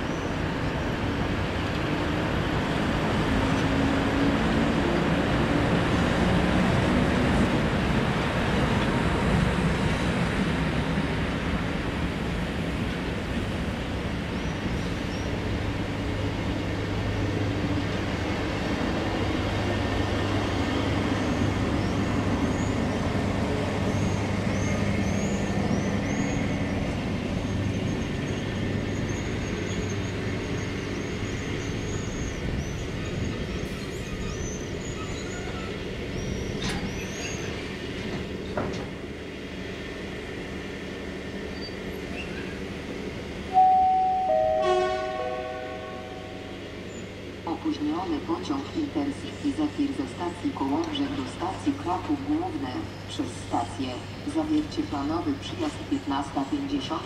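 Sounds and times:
train wagons rolling on rails: 0.0s - 43.6s, 46.8s - 57.0s
high wheel squeaks: 27.4s - 37.6s.

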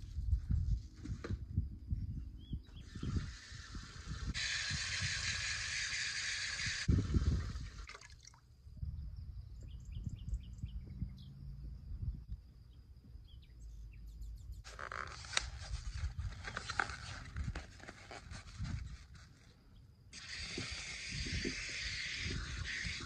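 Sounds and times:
bird chirping: 8.9s - 11.5s, 12.6s - 14.9s.

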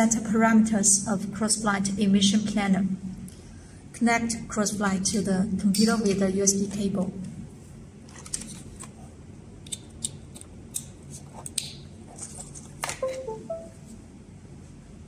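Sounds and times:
short electronic tones: 13.0s - 13.9s.

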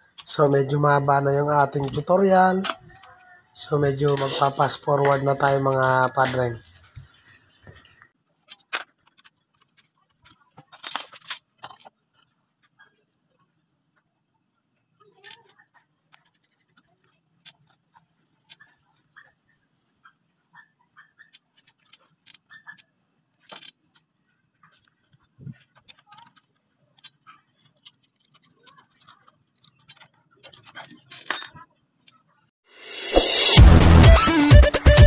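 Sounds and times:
metallic clinks of hand tools: 30.5s - 31.6s.

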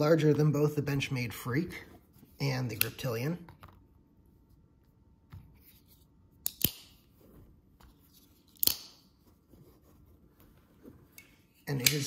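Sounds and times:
folding knife metallic clicks: 6.4s - 7.0s, 8.6s - 9.0s, 11.8s - 12.0s.

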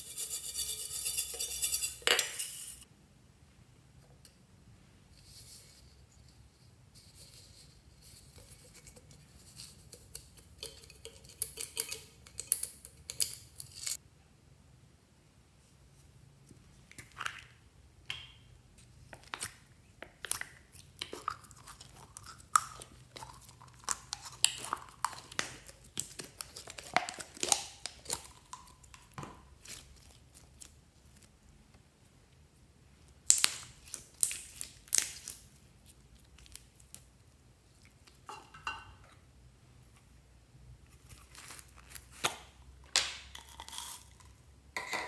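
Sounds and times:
slime squeezing and crackling: 19.2s - 31.4s, 33.2s - 37.2s.

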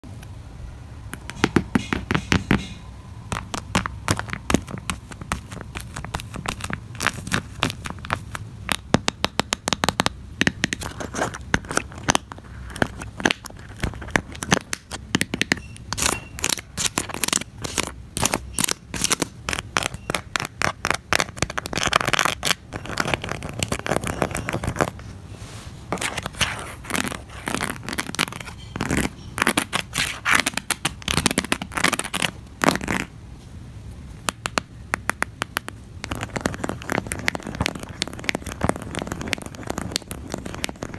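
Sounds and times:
fingers clicking and tapping: 1.1s - 24.9s, 34.2s - 40.9s.

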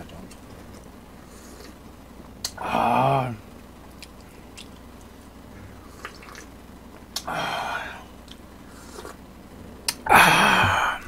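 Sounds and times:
chewing clicks and smacks: 3.9s - 5.1s.

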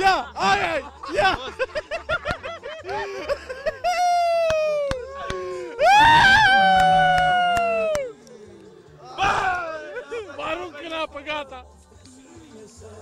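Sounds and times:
long drawn-out cries: 3.8s - 8.1s.

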